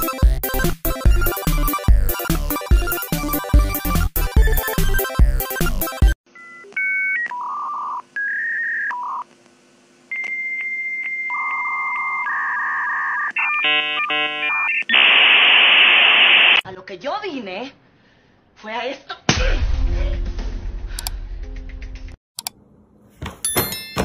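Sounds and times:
warbling modem handshake tones: 10.1s - 16.6s
loud static hiss: 14.9s - 16.6s.

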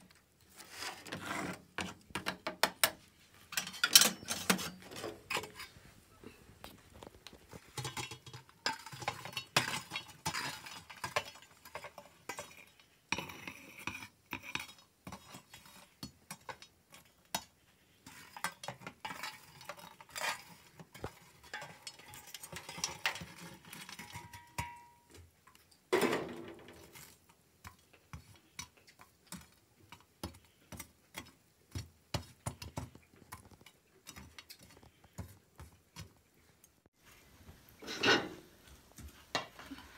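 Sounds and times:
coals clattering on metal: 1.0s - 5.8s, 7.0s - 15.5s, 18.2s - 28.0s, 37.8s - 38.5s
metal tongs scraping on pot lid: 3.5s - 5.8s, 17.4s - 25.0s, 37.8s - 38.5s.

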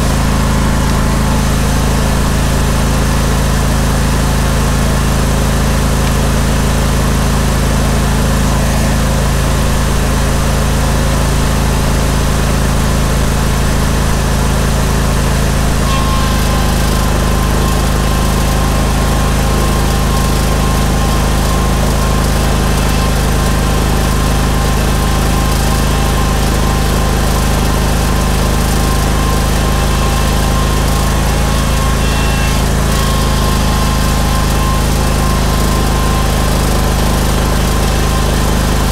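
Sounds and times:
engine running steadily: 0.0s - 38.9s
thin steady whine: 13.5s - 38.9s.

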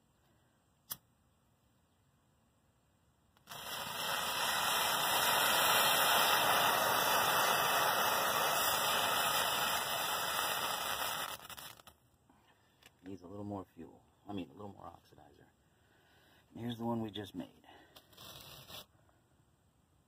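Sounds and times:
burning composition hissing: 3.4s - 12.0s.

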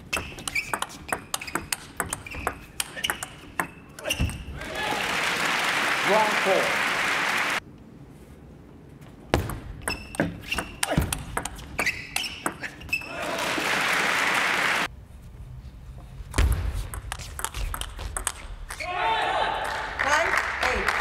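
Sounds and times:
audience applause: 4.6s - 7.6s, 13.2s - 14.9s.

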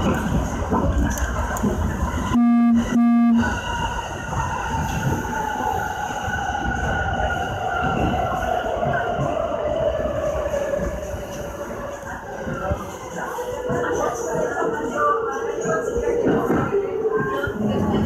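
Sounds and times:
train rumbling through station: 0.0s - 18.0s
train whine falling in pitch: 2.3s - 3.6s
electric train horn: 2.4s - 3.6s.

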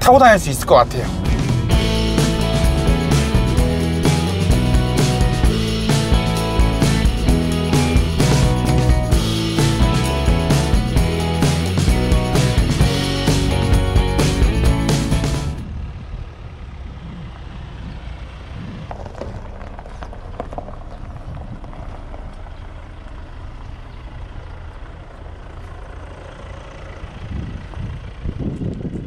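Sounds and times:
car engine rumbling: 0.0s - 29.0s
faint crackles: 18.5s - 23.8s.

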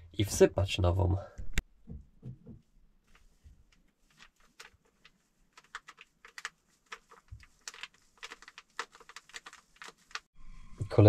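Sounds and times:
plastic packet crinkling: 3.1s - 10.3s.

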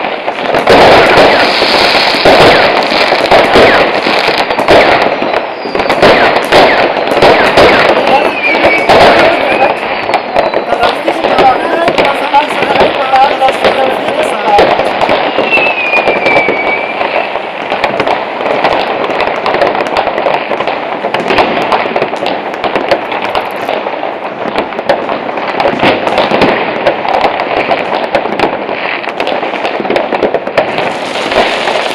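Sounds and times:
fireworks banging and crackling: 0.0s - 31.9s
firework whistle: 0.7s - 11.8s, 14.4s - 17.6s.

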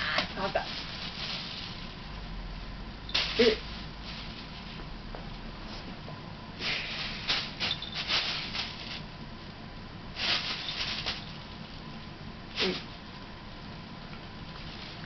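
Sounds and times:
plastic bag crinkling: 0.3s - 2.1s, 6.8s - 9.1s, 10.2s - 11.9s, 14.4s - 15.0s.

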